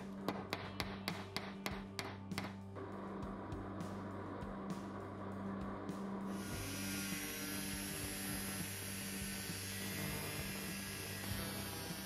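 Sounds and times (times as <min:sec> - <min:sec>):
angle grinder cutting steel: 0:06.4 - 0:12.0.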